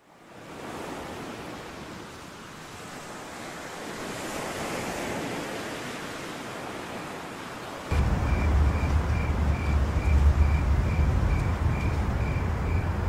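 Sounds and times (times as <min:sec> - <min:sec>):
sea waves washing: 0:02.8 - 0:13.0.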